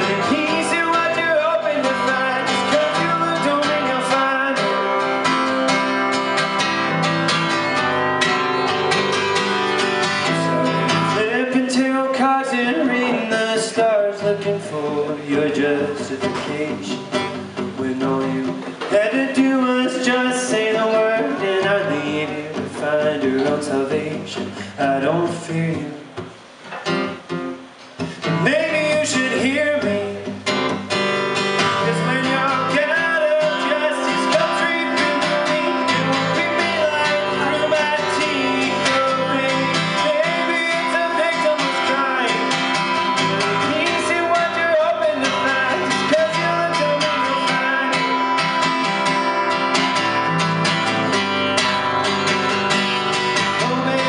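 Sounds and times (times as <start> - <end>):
man singing: 0.0 - 6.0, 10.0 - 26.2, 28.0 - 30.6, 31.6 - 50.4, 53.2 - 54.0
acoustic guitar strumming: 0.0 - 54.0.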